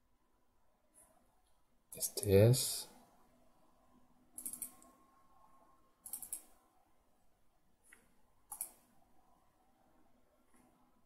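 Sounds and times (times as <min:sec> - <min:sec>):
faint computer mouse clicks: 0:04.4 - 0:05.0, 0:06.0 - 0:06.6, 0:07.8 - 0:08.9.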